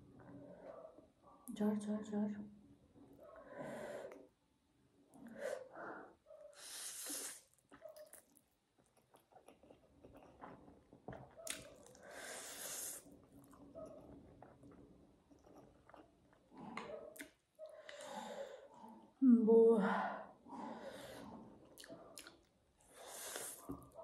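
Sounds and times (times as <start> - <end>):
person slurping noodles: 6.6 - 7.5, 12.0 - 13.1, 22.9 - 23.6
chewing: 7.1 - 12.1, 13.0 - 19.1, 21.1 - 22.6
person breathing: 19.9 - 21.5.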